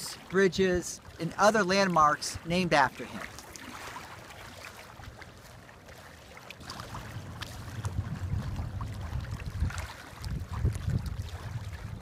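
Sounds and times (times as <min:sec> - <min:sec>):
water lapping: 0:00.0 - 0:12.0
wind buffeting microphone: 0:06.6 - 0:12.0.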